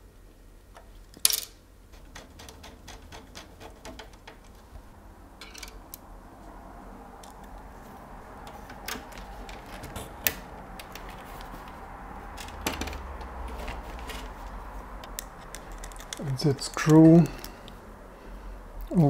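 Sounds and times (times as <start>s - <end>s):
small clicks and knocks of parts: 0.7s - 4.8s, 5.4s - 6.1s, 7.2s - 7.7s, 8.4s - 17.8s
low hum: 3.5s - 18.9s.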